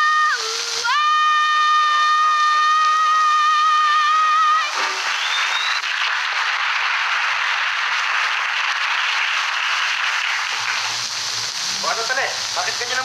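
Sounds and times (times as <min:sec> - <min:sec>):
rising whistle: 0:00.0 - 0:06.0
audience applause: 0:00.0 - 0:13.0.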